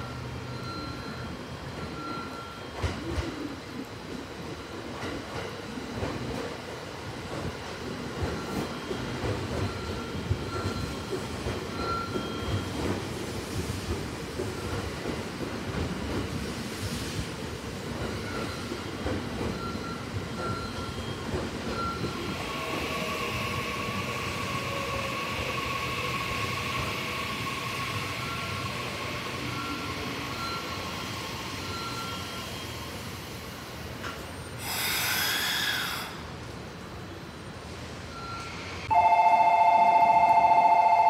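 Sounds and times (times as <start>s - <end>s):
air brake hiss: 34.5s - 36.4s.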